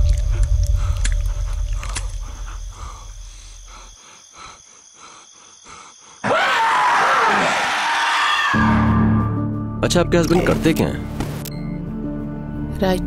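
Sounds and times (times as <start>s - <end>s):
low rumbling drone: 0.0s - 4.0s.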